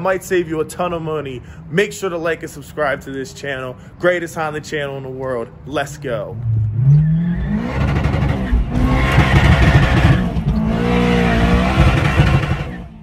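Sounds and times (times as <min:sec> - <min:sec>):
car engine revving: 0:06.4 - 0:13.0.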